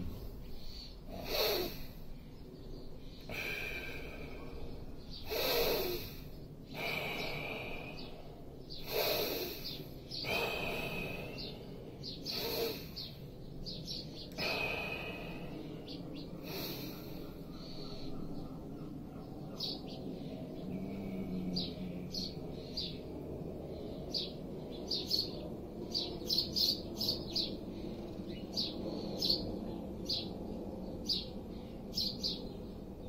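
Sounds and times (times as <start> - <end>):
person breathing forcefully: 0.0 - 19.0
small birds chirping: 0.0 - 33.0.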